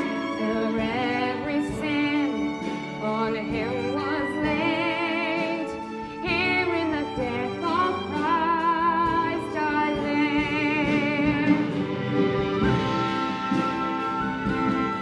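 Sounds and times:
person singing with vibrato: 0.0 - 11.8
instrumental accompaniment: 0.0 - 15.0.

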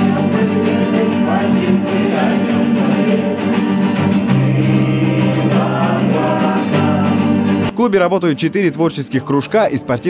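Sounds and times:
people singing: 0.0 - 7.7
electric bass guitar: 0.0 - 7.8
acoustic guitars strumming: 0.0 - 10.0.

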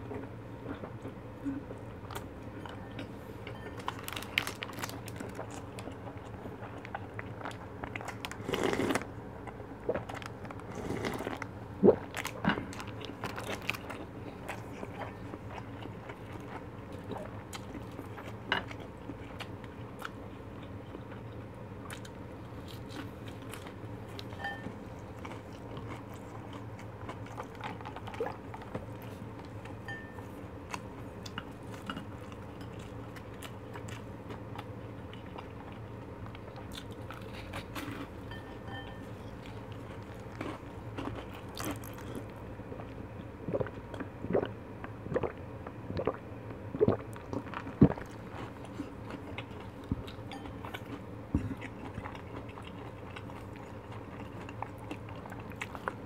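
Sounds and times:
person chewing food: 0.0 - 56.0
person sipping broth: 8.4 - 9.1, 10.6 - 12.0
wet mouth sounds: 43.4 - 48.2.

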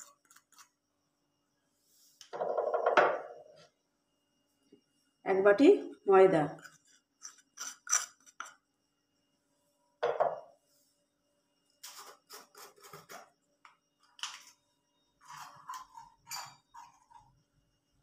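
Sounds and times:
bowls set down on counter: 2.4 - 3.5, 10.0 - 10.5
spoon scraping clay bowl: 6.6 - 8.5, 15.2 - 17.3
crockery clinking: 15.3 - 17.3.

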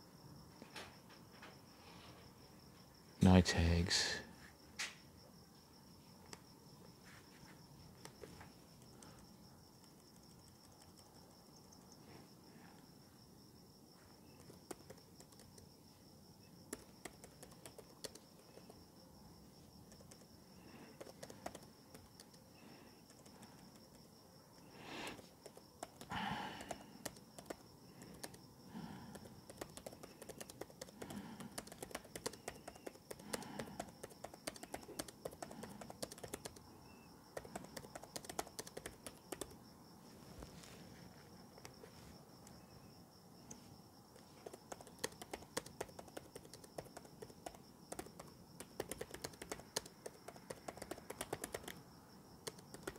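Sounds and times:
crickets chirring: 0.0 - 52.9
laptop keyboard typing: 7.9 - 12.0, 14.2 - 15.8, 16.6 - 18.9, 19.8 - 39.6, 43.5 - 52.9
breathy sound: 26.1 - 27.1, 28.0 - 29.4.

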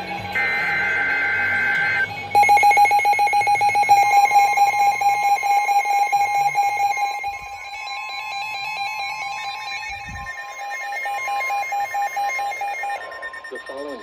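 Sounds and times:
fast-pulsing alarm tone: 0.0 - 14.0
steady high beeps: 0.0 - 14.0
steady single alarm tone: 0.0 - 14.0
warbling high beeps: 0.0 - 14.0.

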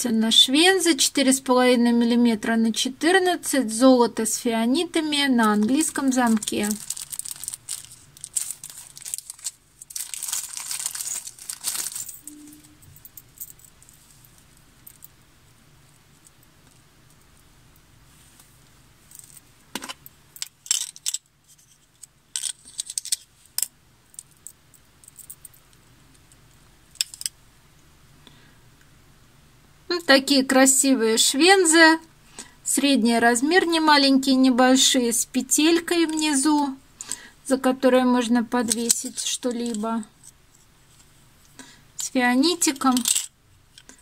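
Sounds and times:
plastic packet crinkling: 5.4 - 12.3.

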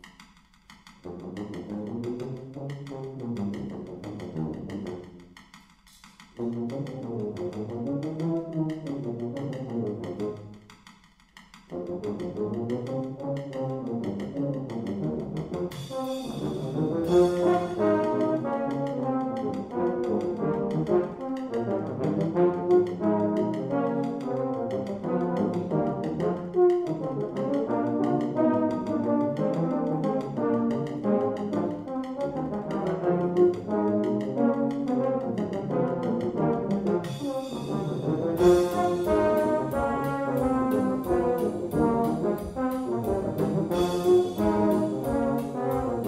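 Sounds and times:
low brass ensemble playing: 6.4 - 10.6, 11.7 - 46.0.

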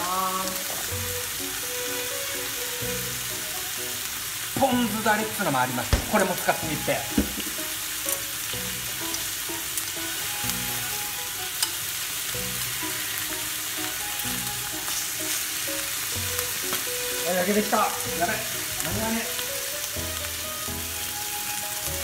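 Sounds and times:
beef sizzling in a frying pan: 0.0 - 22.0
chopsticks ticking and scraping: 11.4 - 14.0.

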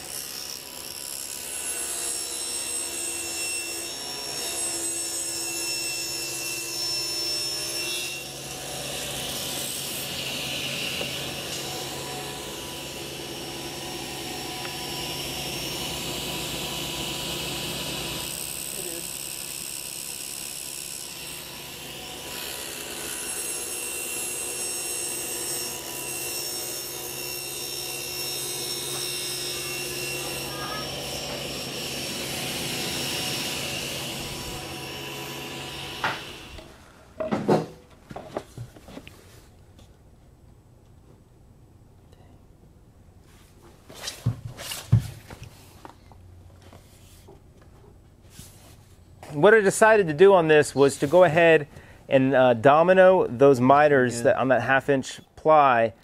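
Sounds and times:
table saw cutting wood: 0.0 - 36.8.

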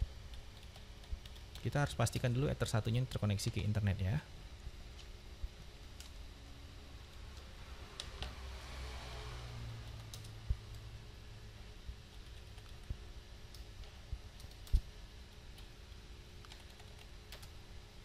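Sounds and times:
low steady hum: 0.0 - 18.0
computer keyboard keystrokes: 0.3 - 2.3, 9.8 - 10.8, 16.4 - 17.6.

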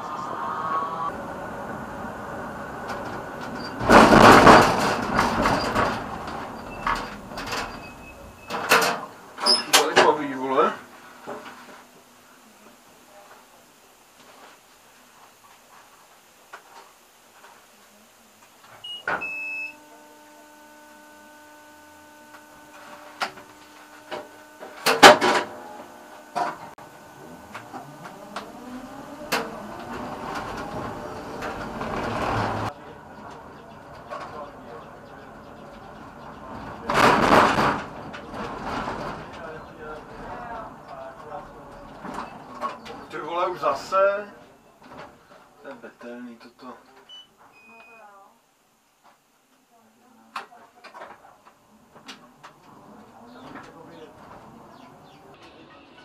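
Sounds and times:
tram running noise: 0.0 - 13.3, 18.8 - 43.9, 52.5 - 56.0
steady mechanical hum: 0.0 - 56.0
rattling wheel-on-rail noise: 1.1 - 11.6, 26.6 - 43.3
loud clatter: 2.8 - 9.1, 19.9 - 32.7, 36.6 - 39.6
short high beep: 18.8 - 19.8.

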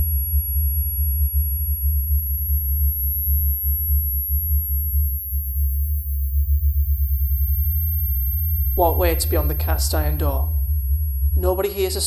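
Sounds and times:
fluttering low electronic drone: 0.0 - 12.0
thin high whine: 5.6 - 12.0.

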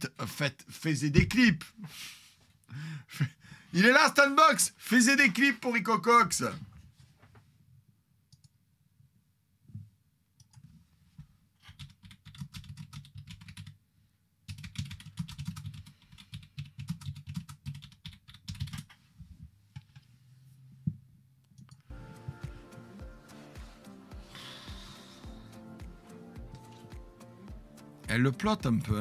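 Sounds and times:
typing on computer keyboard: 11.6 - 13.8, 14.5 - 19.0.

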